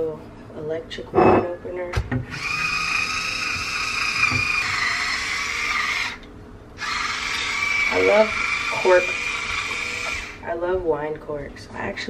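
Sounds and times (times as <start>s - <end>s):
electric wine opener motor whirring: 2.3s - 10.5s.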